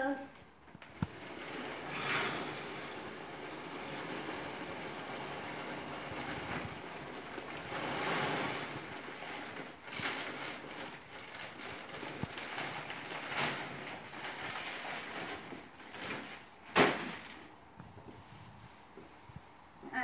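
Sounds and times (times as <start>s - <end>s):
wood pellets pouring: 0.8s - 17.5s.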